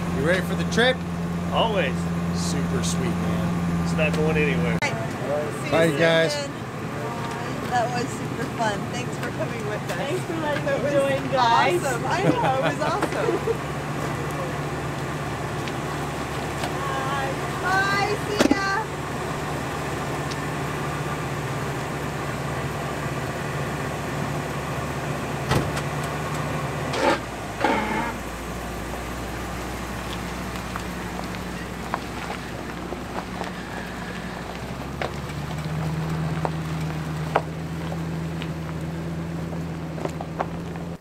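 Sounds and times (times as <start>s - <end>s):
engine running: 0.0s - 41.0s.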